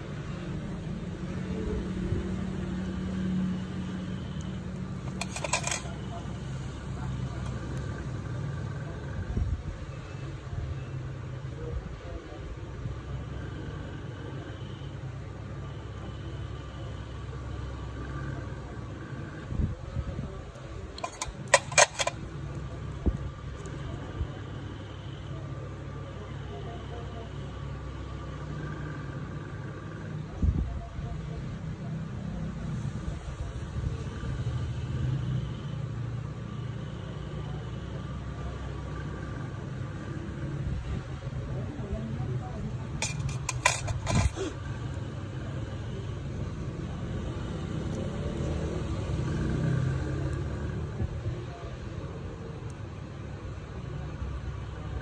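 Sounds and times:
metal nail tools clinking: 0:43.0 - 0:44.4.

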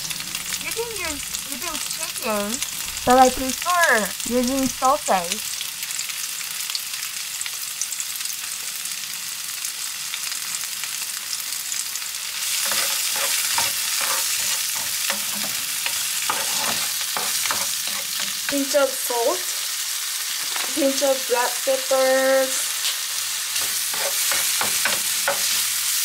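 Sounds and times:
food sizzling in frying pan: 0:00.0 - 0:26.0
spatula scraping pan: 0:12.4 - 0:20.8, 0:22.4 - 0:26.0.

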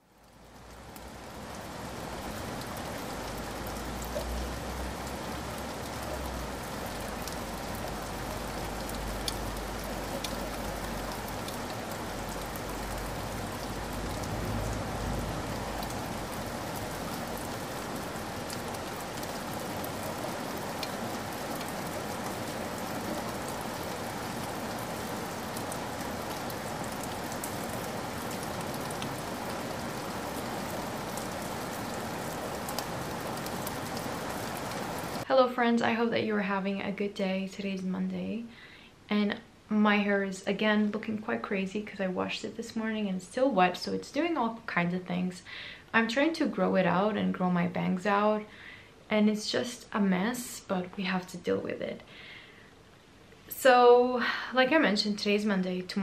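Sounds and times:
steady rain: 0:00.0 - 0:56.0
raindrop ticks: 0:00.2 - 0:35.2.

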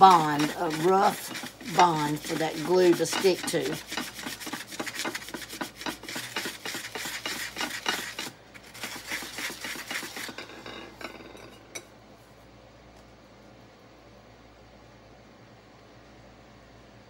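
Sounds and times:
sanding block scrubbing glaze: 0:00.0 - 0:10.3.

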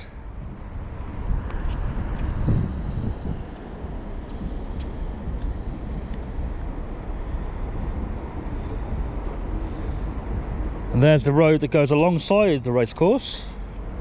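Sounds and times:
wind buffeting microphone: 0:00.0 - 0:11.2.

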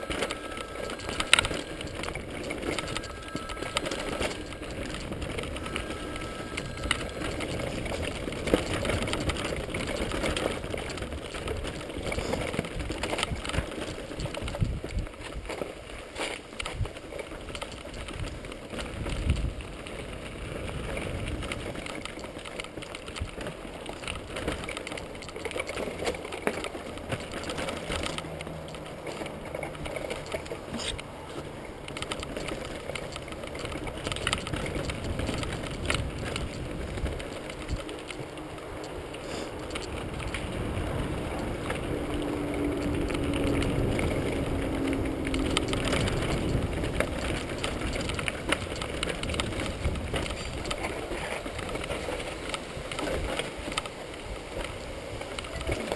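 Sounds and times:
bike chain and frame rattling: 0:00.0 - 0:55.9
tyres rumbling over rock: 0:16.8 - 0:55.9.

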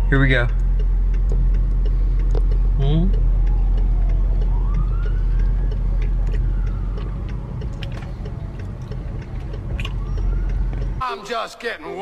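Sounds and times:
road traffic rumble: 0:00.0 - 0:11.0
police siren wailing: 0:02.6 - 0:11.0.

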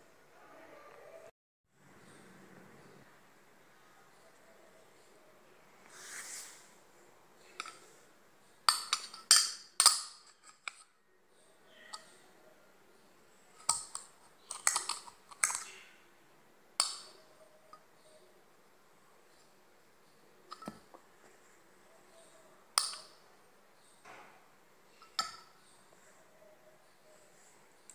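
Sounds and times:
soft rubbing: 0:05.8 - 0:06.8.

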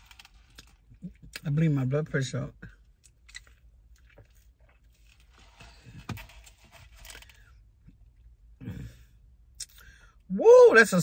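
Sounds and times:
person breathing: 0:08.6 - 0:10.2.

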